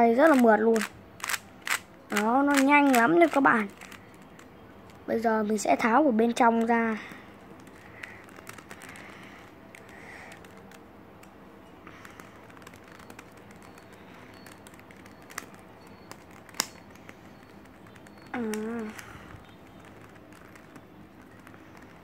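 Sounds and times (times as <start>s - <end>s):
plastic clicks of puzzle cube: 0.2s - 5.0s, 6.5s - 22.0s
person humming: 18.4s - 19.2s.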